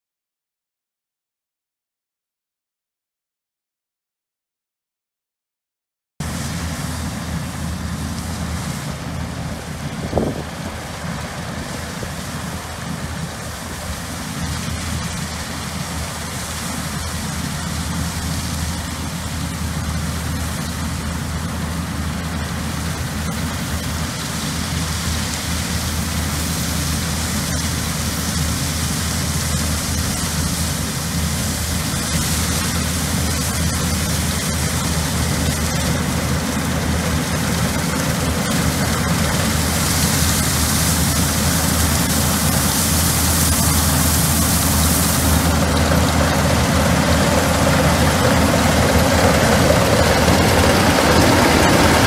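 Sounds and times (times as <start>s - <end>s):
combine harvester engine hum: 6.2s - 52.0s
threshing machinery noise: 6.2s - 52.0s.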